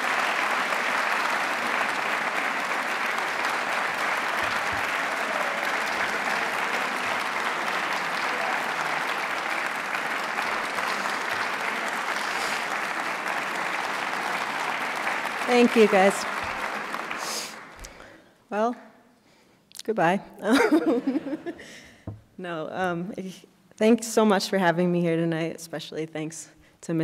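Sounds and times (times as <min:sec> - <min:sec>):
audience applauding: 0:00.0 - 0:18.2.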